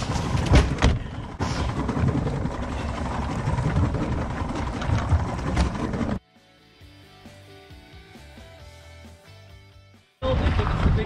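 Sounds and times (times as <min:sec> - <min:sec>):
boat engine rumble: 0:00.0 - 0:06.2.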